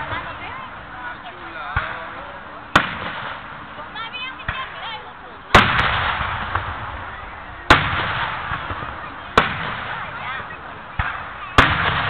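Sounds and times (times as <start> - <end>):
firework shells booming: 1.7 - 3.6, 5.5 - 12.0.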